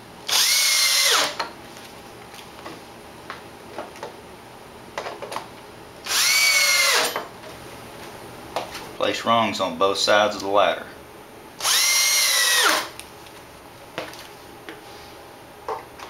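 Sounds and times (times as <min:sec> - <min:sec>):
cordless drill driving screws: 0:00.3 - 0:01.4, 0:06.1 - 0:07.2, 0:11.6 - 0:13.0.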